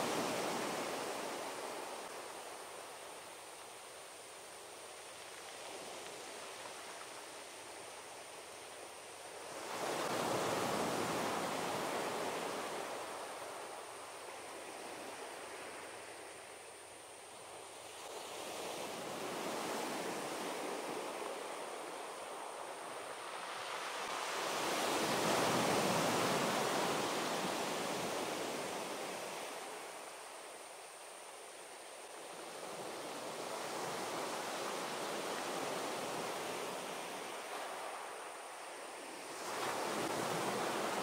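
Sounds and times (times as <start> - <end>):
sea waves washing onto beach: 0.0 - 41.0.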